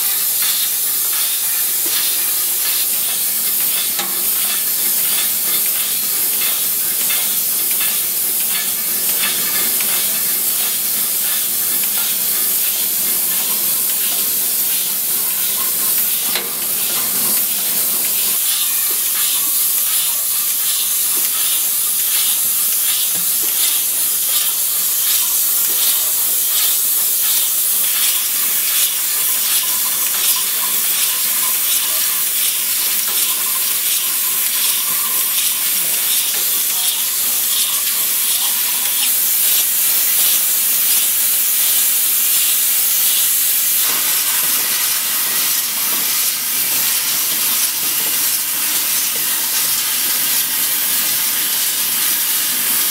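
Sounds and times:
bottling line hiss: 0:00.0 - 0:52.9
glass bottles clinking and clicking: 0:27.3 - 0:39.1.

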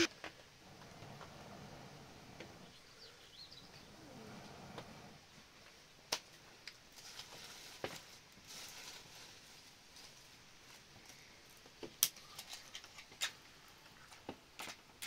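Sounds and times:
faint bird chirping: 0:01.3 - 0:05.1
dry leaves and twigs rustling: 0:05.6 - 0:14.9
twigs snapping: 0:11.8 - 0:13.4.

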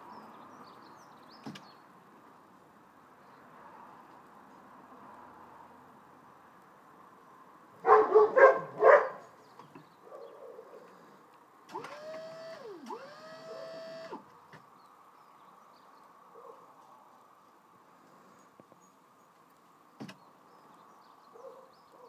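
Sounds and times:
dog barking: 0:07.8 - 0:09.2, 0:16.3 - 0:16.7, 0:21.3 - 0:22.0
hydraulic pump whining: 0:11.7 - 0:14.3.

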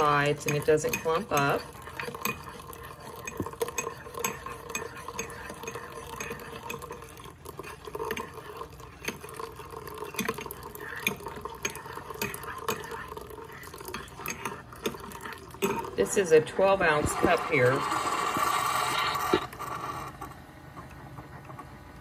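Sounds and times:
coffee maker humming: 0:00.0 - 0:22.0
coffee pouring into mug: 0:00.0 - 0:22.0
metal spoon clinking in ceramic mug: 0:00.3 - 0:06.9.

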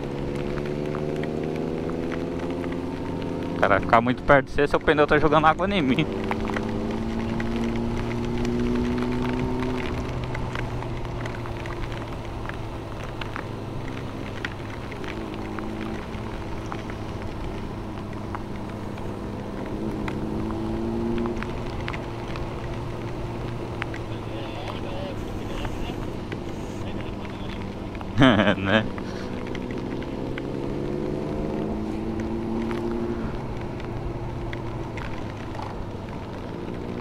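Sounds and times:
raindrops ticking: 0:00.0 - 0:37.0
wind and wet-road noise: 0:00.0 - 0:37.0
motorcycle engine running: 0:05.2 - 0:37.0.

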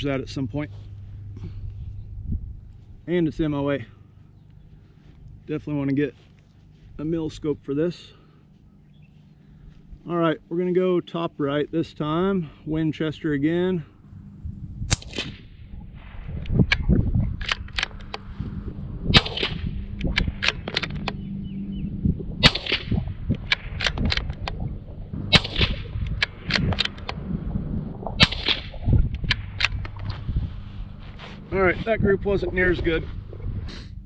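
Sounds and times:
rifle shots: 0:14.9 - 0:16.3, 0:19.1 - 0:21.1, 0:22.4 - 0:24.5, 0:25.2 - 0:27.2, 0:28.2 - 0:29.8
rifle bolt clicks: 0:17.4 - 0:18.3, 0:19.2 - 0:21.2.

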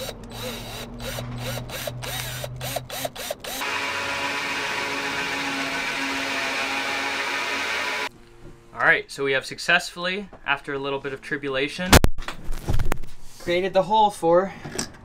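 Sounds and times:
power drill cutting: 0:00.0 - 0:08.1.

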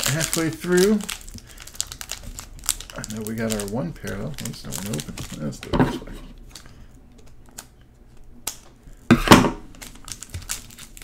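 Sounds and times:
foil pack clicks: 0:00.0 - 0:05.7
foil pack ripping open: 0:00.0 - 0:05.8, 0:09.6 - 0:11.0.

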